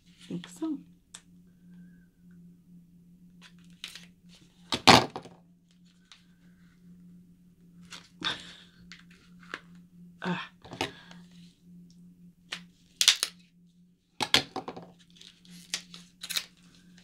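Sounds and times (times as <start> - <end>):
packaging clicks and rustles: 14.3 - 17.0
packaging crackle: 15.1 - 16.6.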